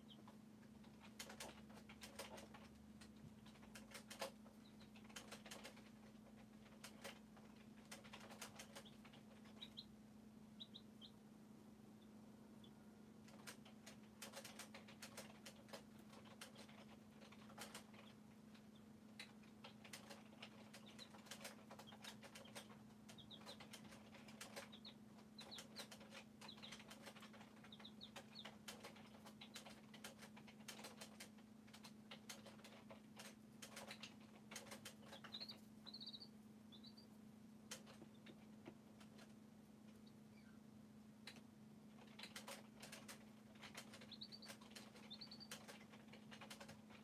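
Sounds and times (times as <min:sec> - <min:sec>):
soft high chick peeps: 0:00.0 - 0:47.0
steady low hum: 0:08.7 - 0:16.2.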